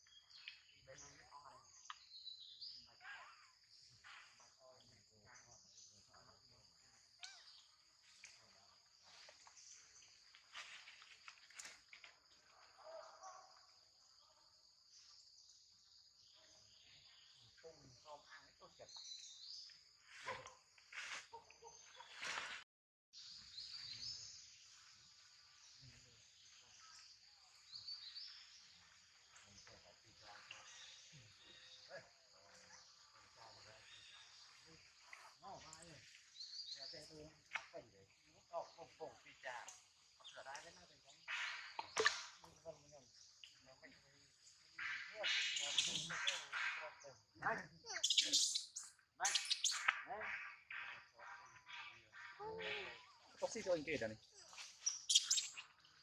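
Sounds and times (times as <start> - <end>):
insects droning: 0.0 - 22.6, 23.2 - 56.0
high insect hiss: 7.2 - 12.6, 23.2 - 32.0, 47.9 - 50.1, 52.7 - 56.0
rising bird chirps: 47.7 - 56.0.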